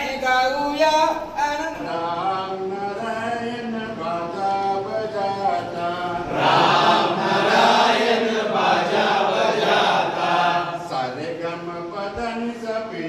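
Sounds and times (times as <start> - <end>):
man singing: 0.0 - 6.3, 10.9 - 13.0
group of men chanting: 1.8 - 13.0.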